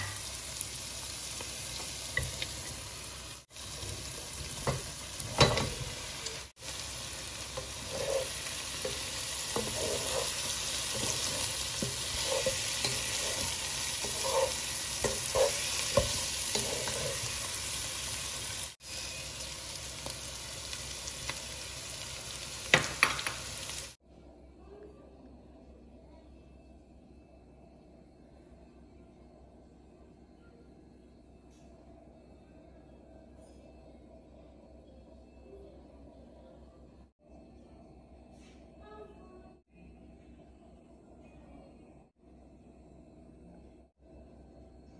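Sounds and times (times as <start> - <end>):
food sizzling in a pan: 0.0 - 24.0
wooden spatula scraping a pan: 7.4 - 17.7.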